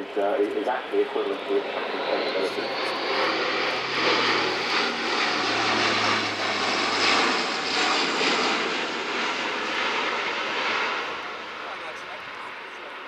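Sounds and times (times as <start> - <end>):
turboprop aircraft droning past: 0.0 - 13.0.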